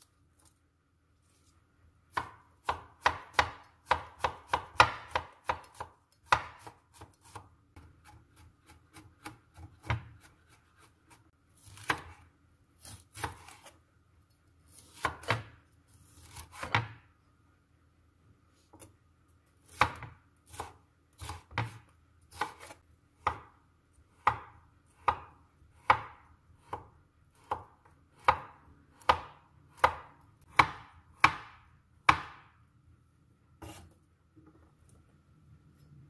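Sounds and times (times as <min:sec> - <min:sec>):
knife chopping on wooden board: 0:02.1 - 0:12.2, 0:12.8 - 0:13.8, 0:14.8 - 0:15.6, 0:16.3 - 0:17.0, 0:19.7 - 0:32.6, 0:33.6 - 0:34.0.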